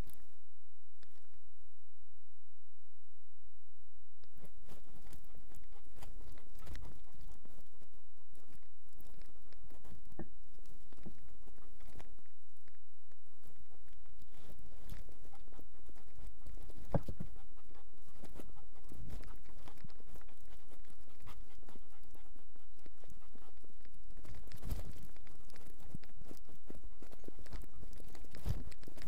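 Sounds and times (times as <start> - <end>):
dog panting: 4.8 - 10.0, 14.9 - 29.0.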